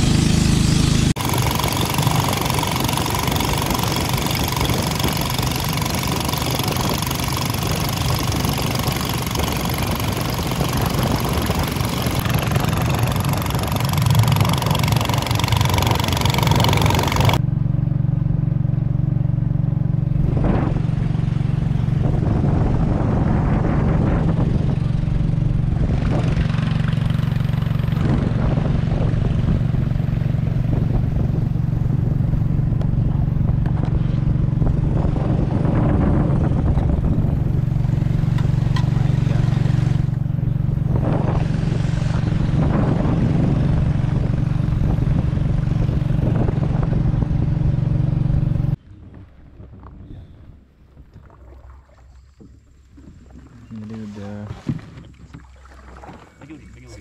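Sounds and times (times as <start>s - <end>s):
boat engine drone: 0.0s - 57.0s.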